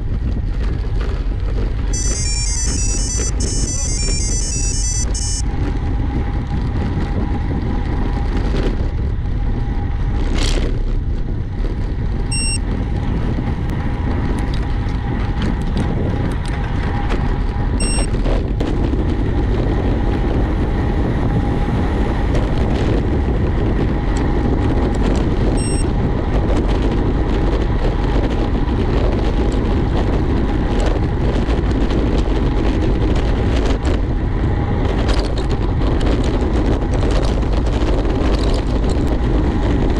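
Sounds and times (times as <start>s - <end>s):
wind rush and road noise: 0.0s - 39.9s
short high-pitched beeps: 1.9s - 5.4s, 12.3s - 12.6s, 17.8s - 18.1s, 25.6s - 25.8s.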